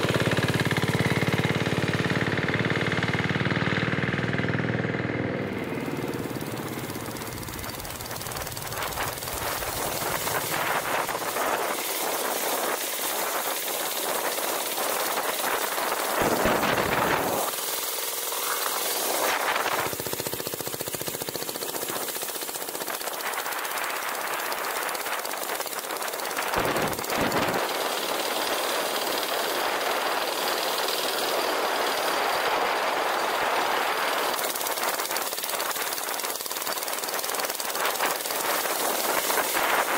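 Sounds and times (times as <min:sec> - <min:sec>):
diesel engine knocking: 0:00.0 - 0:12.1, 0:14.3 - 0:31.6
wind rumble on microphone: 0:06.3 - 0:17.5, 0:26.4 - 0:27.7.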